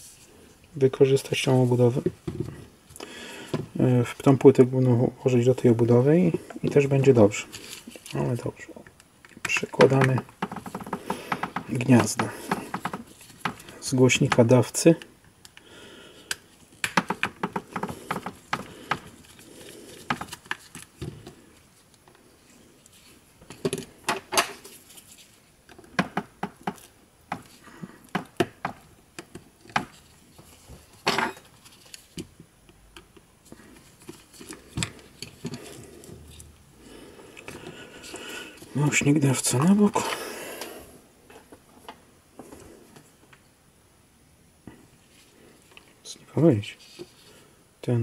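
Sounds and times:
hands handling plastic parts: 5.4 - 15.6, 16.2 - 22.2, 22.8 - 40.7.

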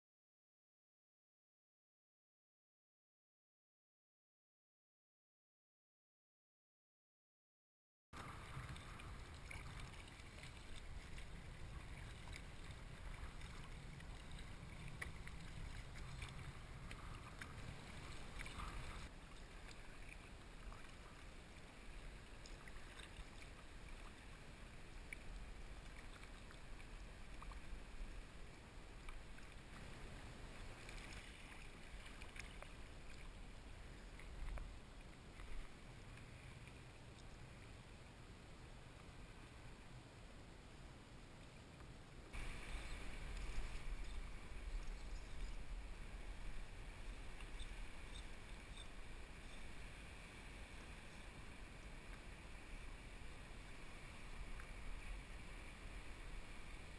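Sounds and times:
wind rumble on microphone: 8.2 - 21.2, 42.3 - 56.9
water drips and ticks: 8.2 - 37.7, 41.8 - 49.8
water lapping around kayak: 8.2 - 56.9.

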